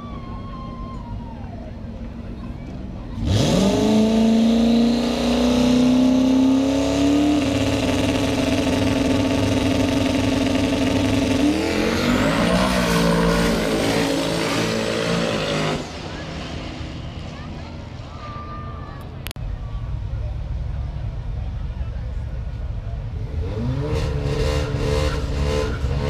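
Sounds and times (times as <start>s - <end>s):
drag car engine revving: 3.0s - 17.6s, 22.4s - 26.0s.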